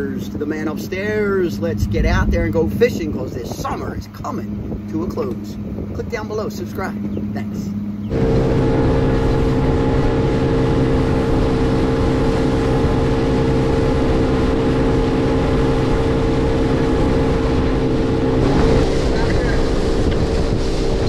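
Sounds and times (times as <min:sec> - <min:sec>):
outboard motor running: 0:00.0 - 0:21.0
water rushing past boat hull: 0:08.1 - 0:21.0.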